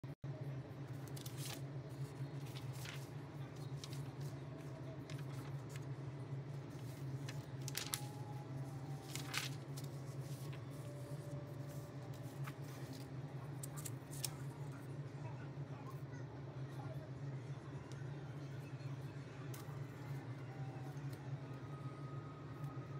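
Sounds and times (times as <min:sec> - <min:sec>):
low room hum: 0:00.0 - 0:22.9
paper rustling and tapping: 0:02.4 - 0:04.4, 0:06.8 - 0:08.2, 0:09.0 - 0:10.6.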